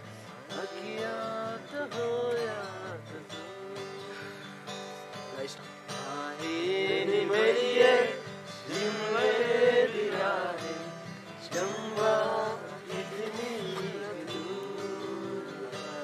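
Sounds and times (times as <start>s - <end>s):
acoustic guitar: 0.0s - 16.0s
person singing: 6.0s - 16.0s.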